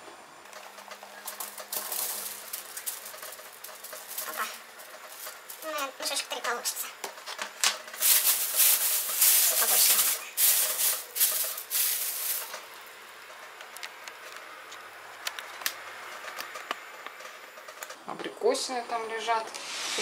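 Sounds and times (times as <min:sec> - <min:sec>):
berries rattling in bag: 0:00.6 - 0:06.7, 0:07.8 - 0:12.8
plastic bag crinkling: 0:01.2 - 0:06.4, 0:07.9 - 0:12.8.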